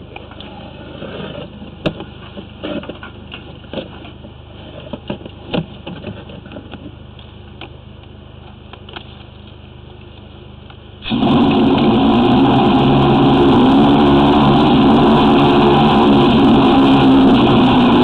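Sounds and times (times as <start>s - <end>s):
steady machine hum: 9.6s - 18.0s.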